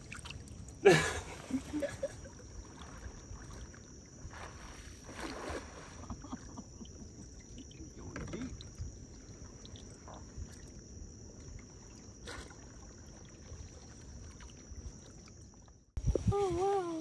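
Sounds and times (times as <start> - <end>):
net sloshing through water: 0.0 - 6.2, 11.5 - 15.7.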